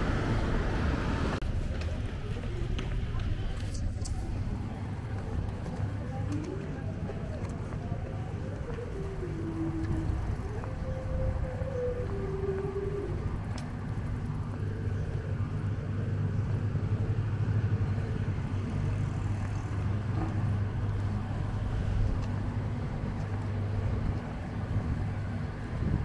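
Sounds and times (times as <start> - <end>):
low engine drone: 0.0 - 26.0.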